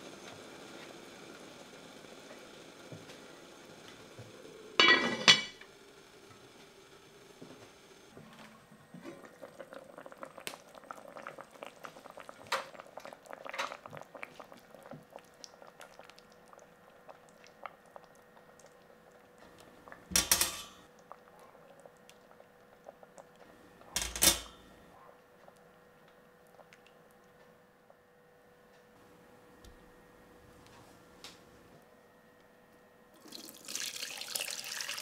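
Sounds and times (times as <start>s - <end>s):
liquid simmering in a pot: 8.1s - 28.8s, 33.2s - 35.0s.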